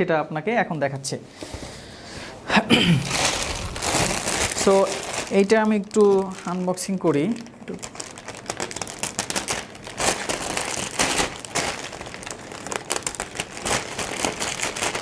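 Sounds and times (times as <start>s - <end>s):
plastic packaging crinkling: 3.0s - 15.0s.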